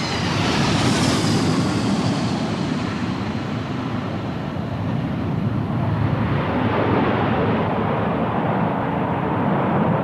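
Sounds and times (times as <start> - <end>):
jet engine high hiss: 0.0 - 4.9
jet engines rushing: 0.0 - 7.4
jet engine low rumble: 0.0 - 10.0.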